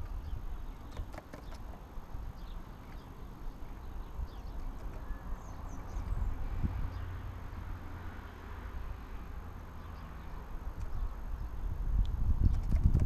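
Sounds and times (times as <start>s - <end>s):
bird taps on metal roof: 0.0s - 1.8s, 4.5s - 5.2s, 12.4s - 13.0s
high bird chirps: 2.4s - 7.1s.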